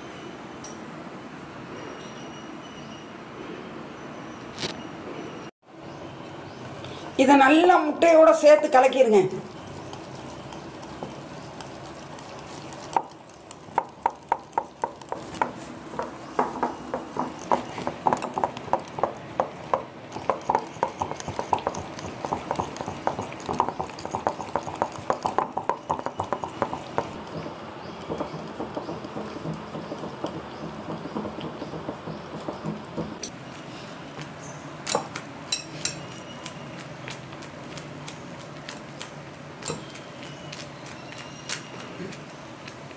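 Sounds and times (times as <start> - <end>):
utensil knocking against bowl: 13.8 - 33.3.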